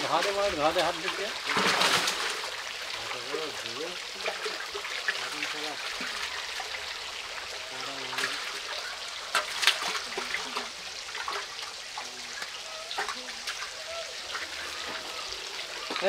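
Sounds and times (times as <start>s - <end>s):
fish splashing in water: 0.0s - 16.0s
water running and trickling: 0.0s - 16.0s.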